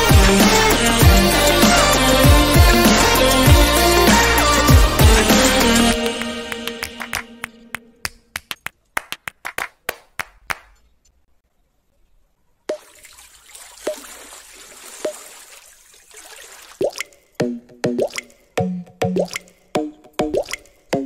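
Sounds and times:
background music: 0.0s - 8.1s
water drops plopping: 12.7s - 15.5s, 16.2s - 20.8s
water fountain trickling: 12.8s - 17.4s.

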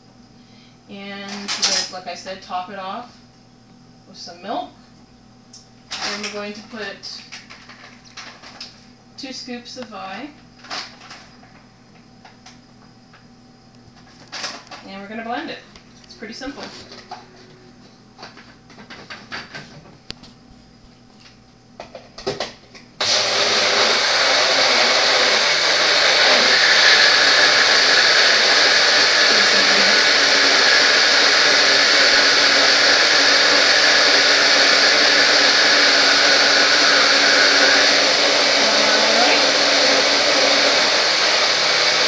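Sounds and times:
blender motor running: 23.0s - 42.0s.

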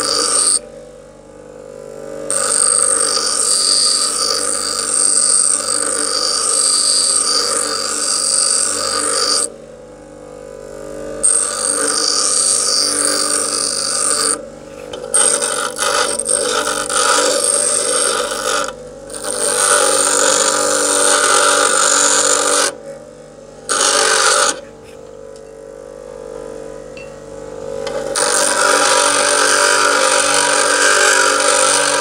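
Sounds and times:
bench grinder motor hum: 0.0s - 0.6s, 2.2s - 9.6s, 11.1s - 22.9s, 23.6s - 25.0s, 27.8s - 32.0s
steel grinding on wheel: 0.0s - 0.6s, 2.3s - 9.5s, 11.2s - 22.8s, 23.7s - 24.7s, 28.1s - 32.0s.

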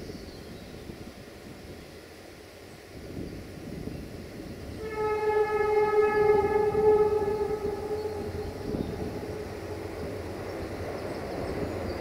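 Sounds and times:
passing train rumble: 0.0s - 12.0s
train horn blast: 4.8s - 10.7s.

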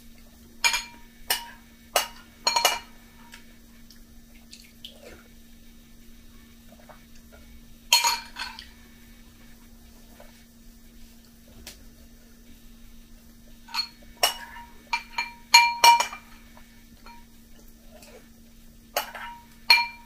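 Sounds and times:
spoon clinking against glass bowl: 0.6s - 2.9s, 13.7s - 16.4s, 17.0s - 17.3s, 19.0s - 20.0s.

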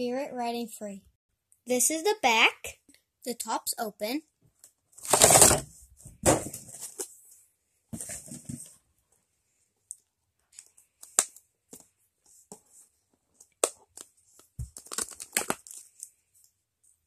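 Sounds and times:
packaging rustling and tearing: 5.0s - 5.7s, 13.9s - 16.2s
toy packaging clicks and crackles: 14.7s - 16.2s.

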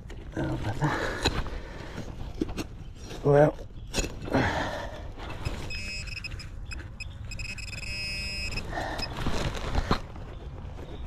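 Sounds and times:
metal detector pinpointer beeping: 5.4s - 9.1s.

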